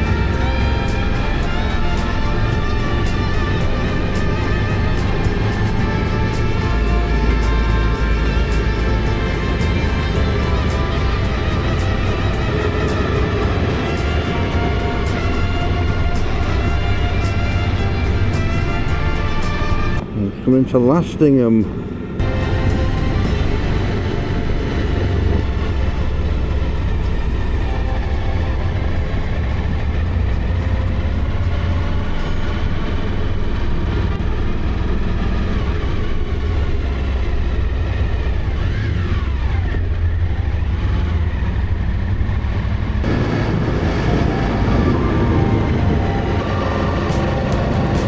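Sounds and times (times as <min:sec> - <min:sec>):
motorcycle engine running: 0:00.0 - 0:20.2, 0:20.8 - 0:48.0
wind rushing past microphone: 0:41.9 - 0:48.0.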